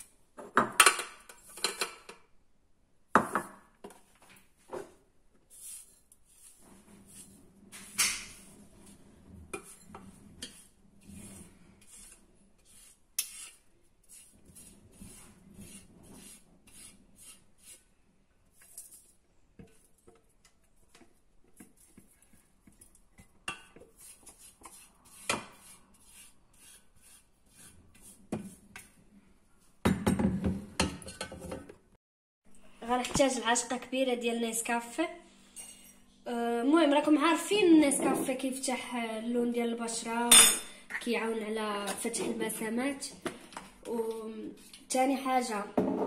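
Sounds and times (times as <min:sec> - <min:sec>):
utensil scraping metal jug: 0:05.5 - 0:17.9, 0:23.8 - 0:28.9.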